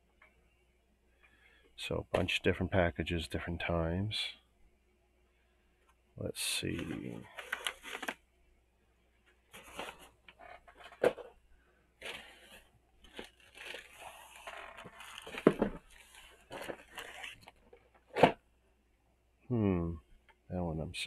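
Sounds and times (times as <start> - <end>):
plastic mailer crinkling: 7.0 - 8.2, 9.5 - 11.3, 12.0 - 18.4.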